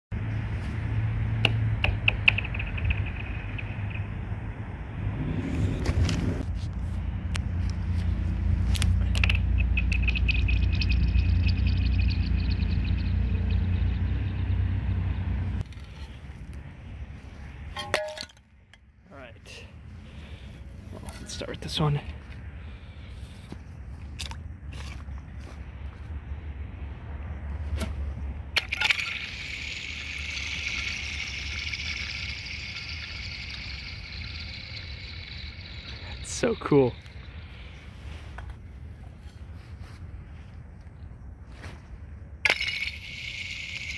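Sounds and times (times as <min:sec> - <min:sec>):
steady low rumble: 0:00.1 - 0:21.0
high ringing ice tone: 0:02.3 - 0:04.7, 0:09.5 - 0:15.6
ice ringing high-pitched whirring: 0:09.6 - 0:14.2, 0:28.6 - 0:37.4, 0:42.4 - 0:43.9.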